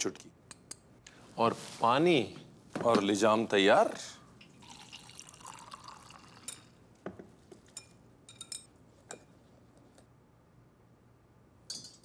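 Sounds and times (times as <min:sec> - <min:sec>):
water pouring into bowl: 0:04.5 - 0:06.8.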